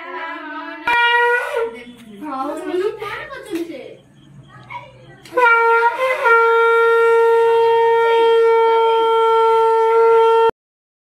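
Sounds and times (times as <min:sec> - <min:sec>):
conch shell blown: 0:00.8 - 0:02.5, 0:05.3 - 0:10.5.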